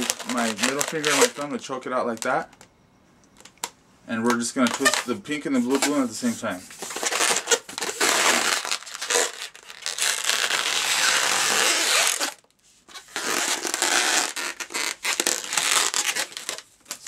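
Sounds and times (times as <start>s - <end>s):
balloons rubbing together: 0.0s - 1.5s, 4.6s - 16.7s.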